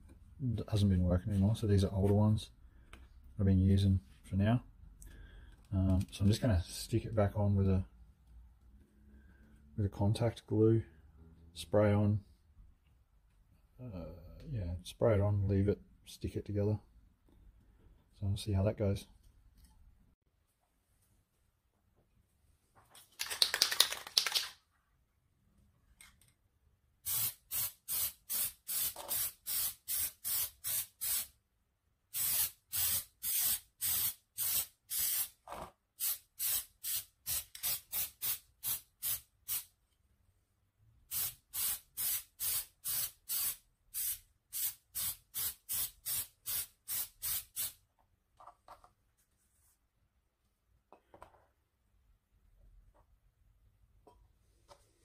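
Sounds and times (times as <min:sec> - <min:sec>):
aerosol spray hissing bursts: 0:27.1 - 0:31.3, 0:32.2 - 0:35.3, 0:36.0 - 0:39.7, 0:41.1 - 0:47.8.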